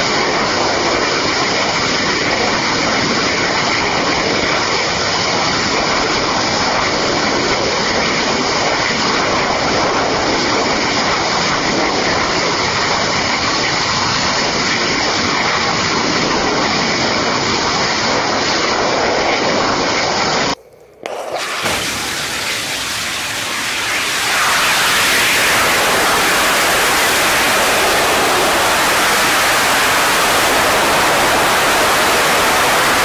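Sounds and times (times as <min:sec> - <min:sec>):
rocket engine firing: 0:17.3 - 0:33.0
steady hiss: 0:20.6 - 0:33.0.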